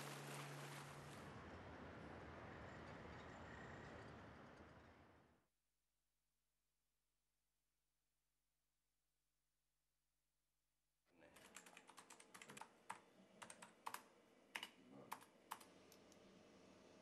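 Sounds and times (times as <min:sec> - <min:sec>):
computer keyboard and mouse clicking: 0:11.4 - 0:16.2.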